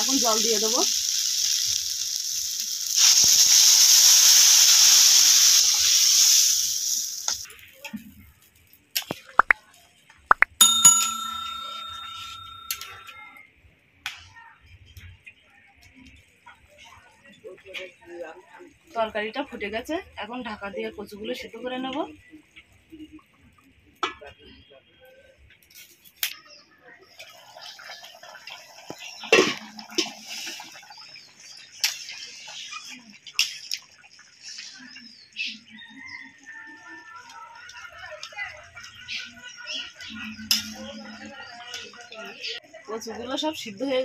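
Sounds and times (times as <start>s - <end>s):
curry boiling and bubbling: 0.0s - 9.6s, 27.0s - 42.3s
quick rising pops and clicks: 10.3s - 10.6s
bell ding: 10.5s - 13.2s.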